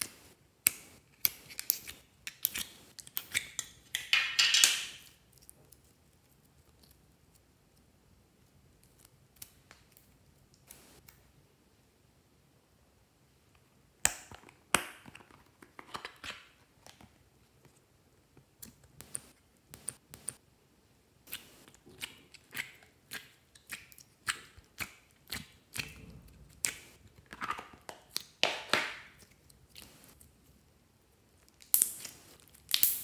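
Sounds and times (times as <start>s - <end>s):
slime squishing: 21.3s - 30.2s.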